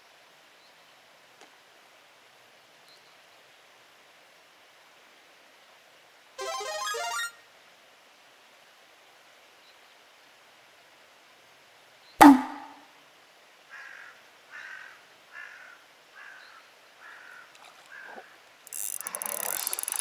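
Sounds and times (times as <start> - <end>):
sharp loud knock: 12.2 - 12.8
crow cawing: 13.7 - 18.4.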